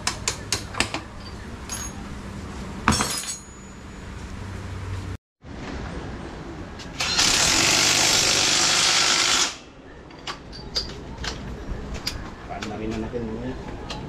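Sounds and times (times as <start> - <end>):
power tool running: 7.0 - 9.6.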